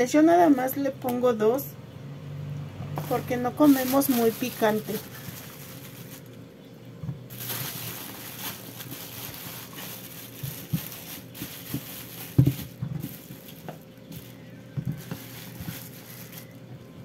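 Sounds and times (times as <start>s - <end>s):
fruit knocking against colander: 10.5s - 13.8s.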